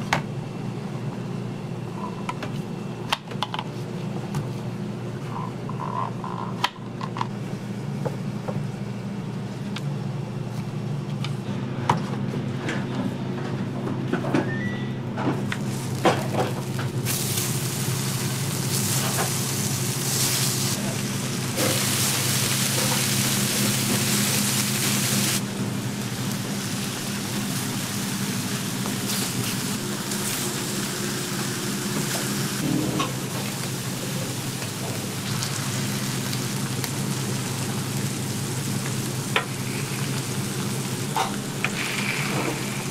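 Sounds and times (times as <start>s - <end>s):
meat sizzling on a griddle: 15.7s - 25.4s, 26.0s - 32.6s, 33.4s - 42.9s
low hum: 32.6s - 34.3s
low steady hum: 32.6s - 42.9s.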